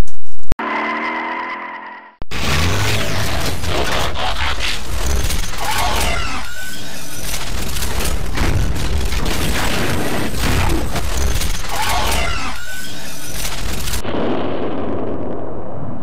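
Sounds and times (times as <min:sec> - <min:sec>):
mechanical clicking and clanking: 0:02.8 - 0:14.0
deep rumble: 0:14.0 - 0:16.0.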